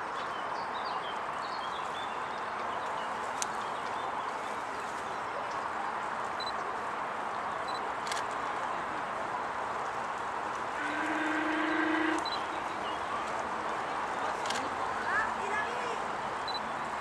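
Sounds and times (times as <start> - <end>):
outdoor background noise: 0.0 - 17.0.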